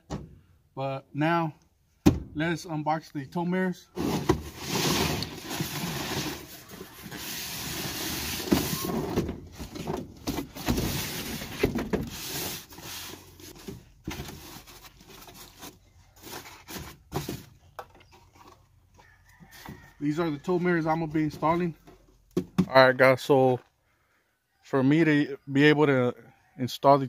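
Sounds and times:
cardboard and styrofoam handling: 4.0s - 17.6s.

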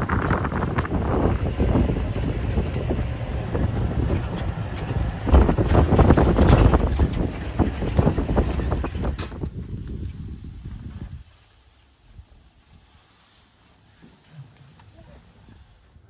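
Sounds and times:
knocks and rattles: 0.0s - 9.5s
wind buffeting microphone: 0.0s - 11.4s
vehicle engine and tyre rumble: 0.0s - 16.0s.

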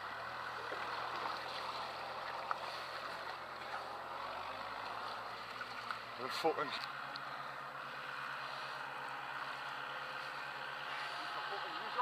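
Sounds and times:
water washing around boat hull: 0.0s - 6.9s
tractor engine running: 0.0s - 12.0s.

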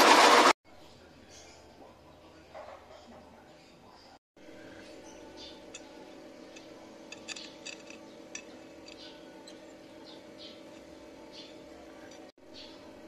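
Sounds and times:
steady low hum: 3.4s - 13.0s.

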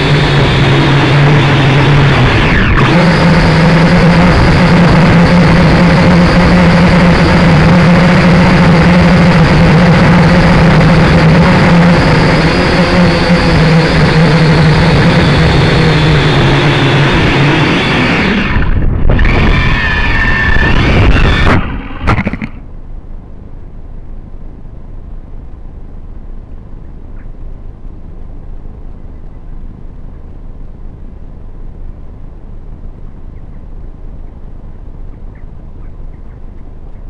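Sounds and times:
drone propellers buzzing: 0.0s - 23.2s
low rushing noise: 0.0s - 37.0s.

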